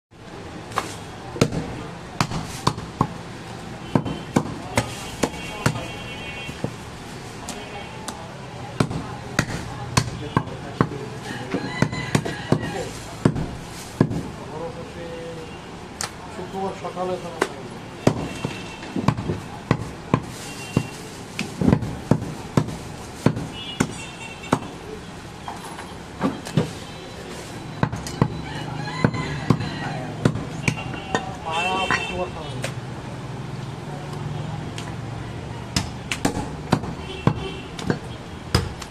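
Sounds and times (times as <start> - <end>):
cleaver chopping meat on wood: 0.8 - 3.2, 3.9 - 5.9, 8.8 - 14.3, 17.4 - 24.8, 29.0 - 31.3, 35.8 - 38.9
cleaver chopping on wooden block: 35.8 - 38.9.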